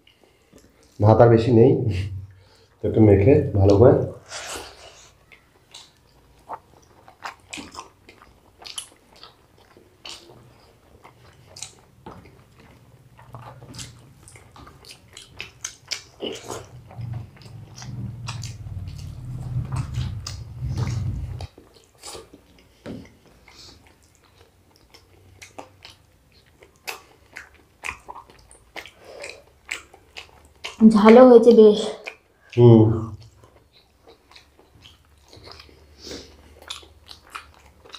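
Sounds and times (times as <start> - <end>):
chewing and wet mouth clicks: 0.0 - 1.0, 5.1 - 31.2, 32.0 - 32.6, 33.2 - 37.9
low muffled rumble: 16.8 - 21.5.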